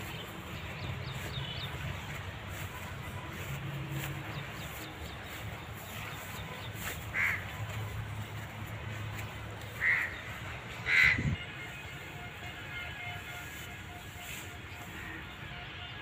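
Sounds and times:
harsh bird calls: 9.2s - 11.4s.

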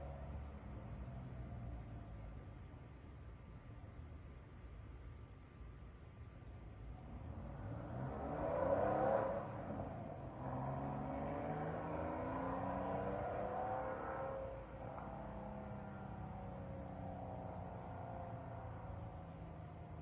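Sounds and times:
car engine accelerating hard: 7.0s - 20.0s.

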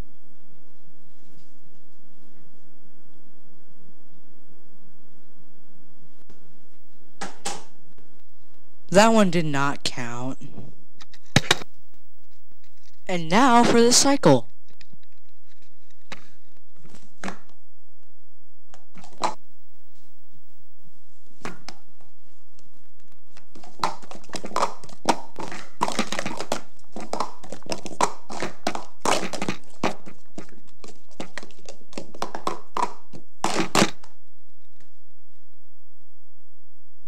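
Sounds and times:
plastic cups clacking on table: 23.3s - 34.2s.

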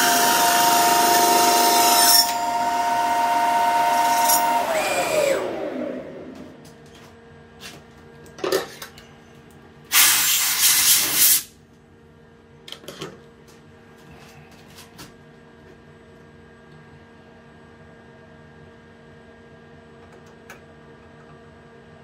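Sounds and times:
lathe spindle whine: 0.0s - 6.6s.

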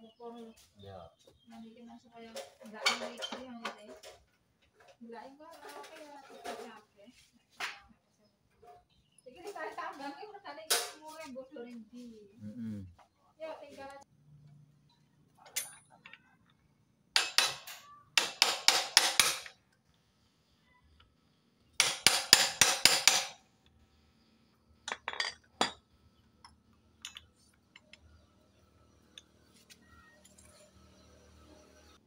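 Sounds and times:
hammer striking steel tool: 17.2s - 19.6s, 21.8s - 23.4s.

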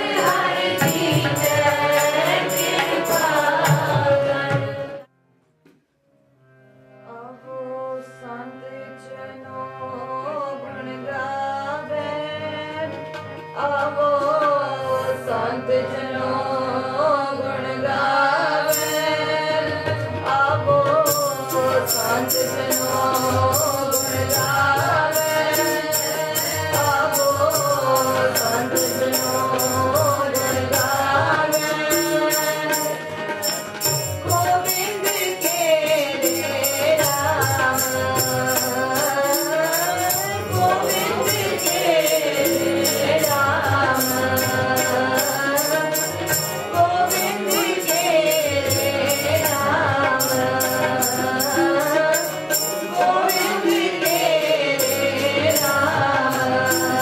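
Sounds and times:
tabla beat: 0.0s - 5.1s, 18.7s - 57.0s
harmonium: 0.0s - 57.0s
woman singing a hymn: 34.3s - 46.0s.

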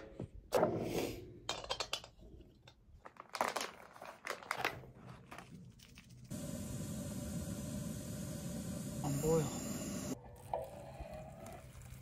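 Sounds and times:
foil pouch crinkling: 3.0s - 6.3s
gas stove hissing: 6.3s - 10.2s.

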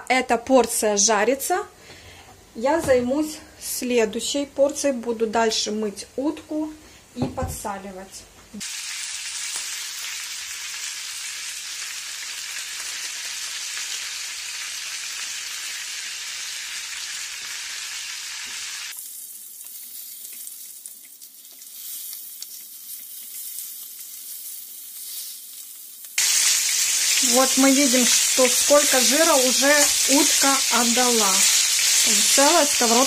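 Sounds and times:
meat sizzling in a frying pan: 8.6s - 33.0s.

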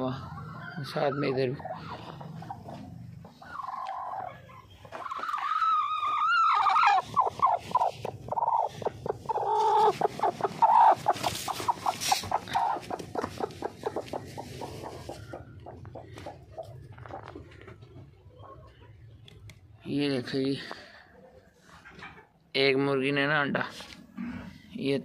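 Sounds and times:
hen calling and clucking: 0.0s - 19.2s.

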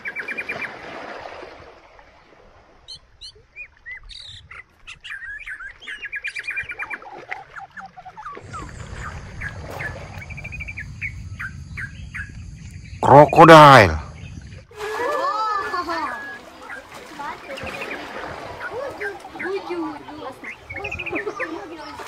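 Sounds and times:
small birds chirping: 2.9s - 14.7s, 15.8s - 22.0s
low rumble: 8.4s - 13.0s.

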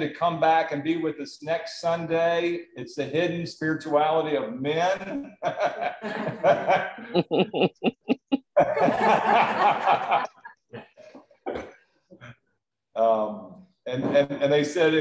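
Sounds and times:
people laughing: 5.0s - 11.1s.

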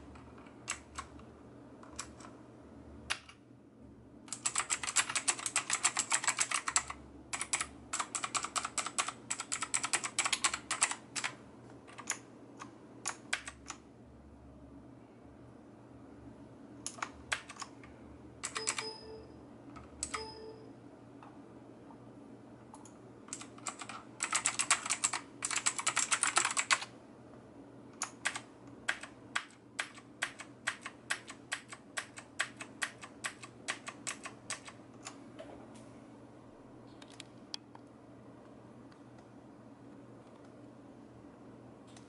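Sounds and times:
fast typing: 0.6s - 1.1s, 4.3s - 12.2s, 16.9s - 17.8s, 18.4s - 18.9s, 23.3s - 26.9s, 28.0s - 34.8s
brief ringing tone: 18.6s - 19.4s, 20.1s - 20.7s
mechanical keyboard key clicks: 28.0s - 35.2s.

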